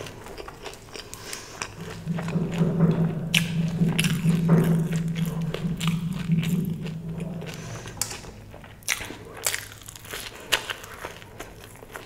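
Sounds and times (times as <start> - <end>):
person chewing and crunching: 0.0 - 1.8.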